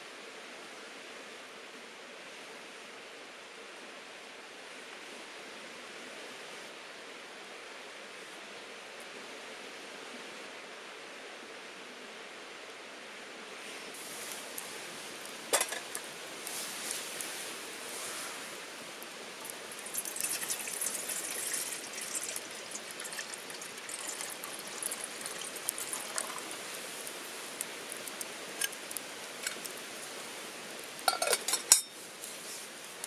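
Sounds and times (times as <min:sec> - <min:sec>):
cookware clinking: 0:15.6 - 0:16.0, 0:31.1 - 0:32.0
liquid pouring: 0:19.4 - 0:27.2.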